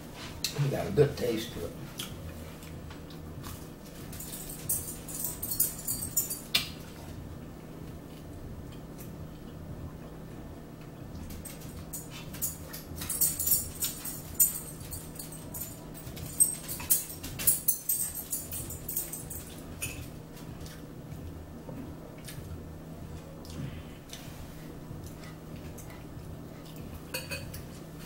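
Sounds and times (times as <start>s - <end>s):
steady low hum: 0.0s - 28.0s
metal fork clinking on a bowl: 4.2s - 6.8s, 11.4s - 20.1s, 27.1s - 27.6s.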